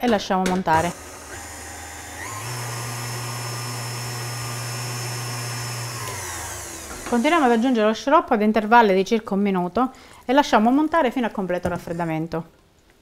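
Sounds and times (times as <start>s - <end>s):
stand mixer motor whine: 0.8s - 7.8s.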